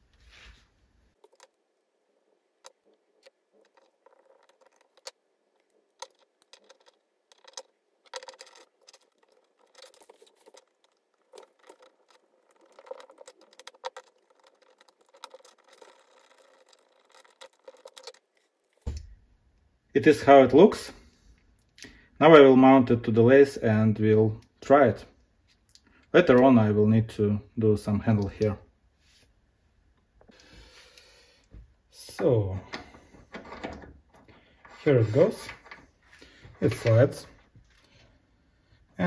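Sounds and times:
small metal parts clicking: 2.6s - 18.4s
screwdriver turning screw: 6.0s - 18.3s.

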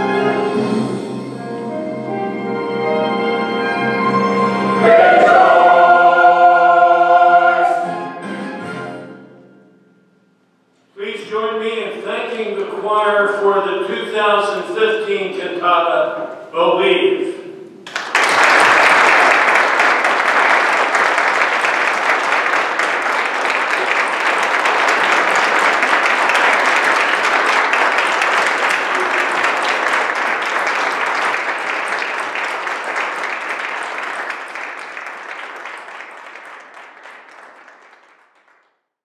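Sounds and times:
congregation applauding: 4.8s - 6.5s, 17.8s - 38.8s.

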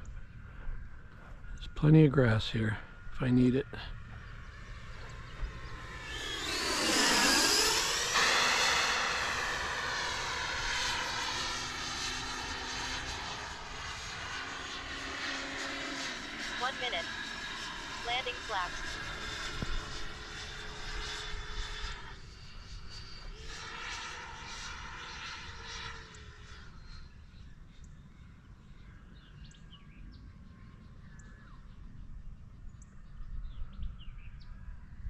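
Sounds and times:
electric fan motor whine: 2.9s - 28.0s.

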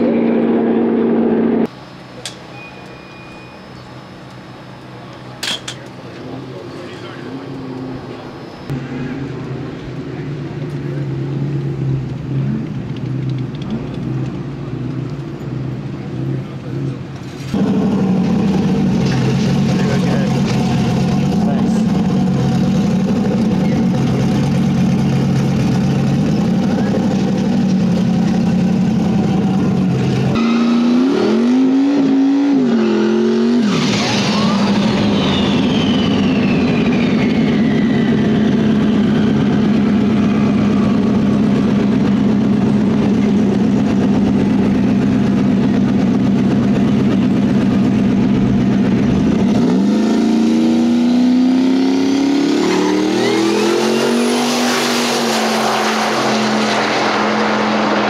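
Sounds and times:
race car engines idling and revving: 0.0s - 58.0s
sharp high whine: 33.6s - 39.6s.

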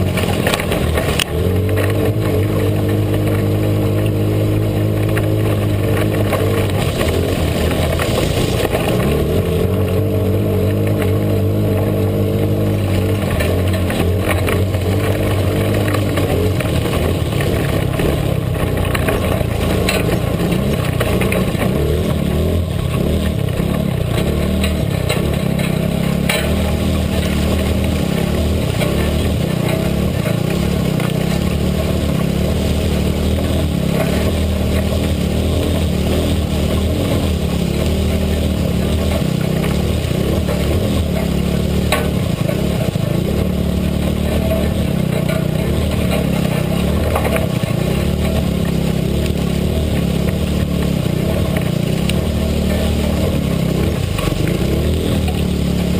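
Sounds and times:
off-road vehicle engine running: 0.0s - 55.9s.

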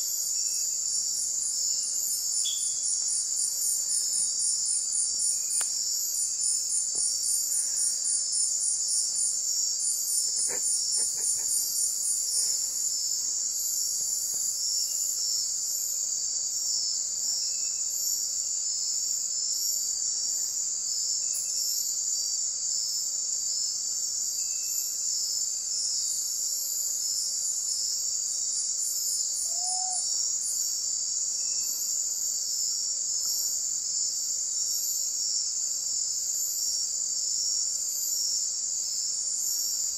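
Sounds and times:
crickets and katydids trilling: 0.0s - 39.9s
high pulsing insect trill: 0.0s - 39.9s.

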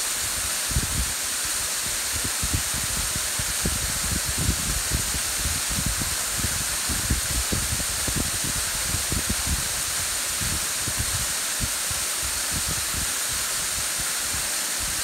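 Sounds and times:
waterfall splashing into pool: 0.0s - 15.0s
wind buffeting microphone: 0.7s - 1.2s, 1.8s - 13.1s.

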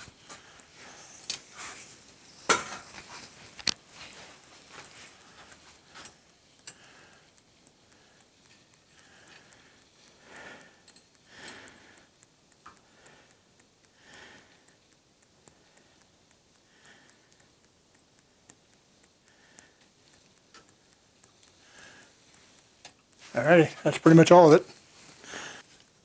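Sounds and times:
soft breaths or sniffs: 0.0s - 12.2s, 19.2s - 20.3s, 21.3s - 23.4s, 24.7s - 25.9s
faint quick ticking: 0.0s - 26.0s.

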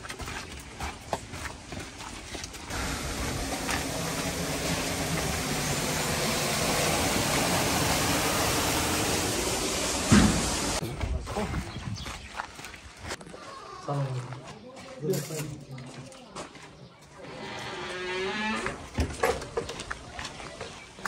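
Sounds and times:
footsteps: 0.0s - 4.6s
rushing flowing water: 2.7s - 10.8s.

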